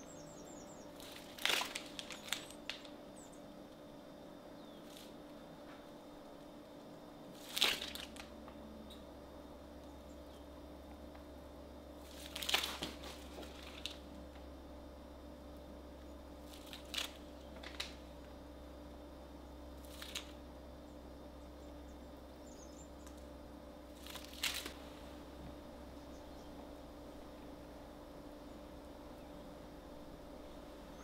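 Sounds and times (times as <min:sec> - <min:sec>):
faint steady hum: 0:00.0 - 0:31.0
plastic piping bag crinkling: 0:01.0 - 0:03.0, 0:07.4 - 0:08.3, 0:12.1 - 0:14.1, 0:16.4 - 0:18.0, 0:19.8 - 0:20.4, 0:24.0 - 0:24.8.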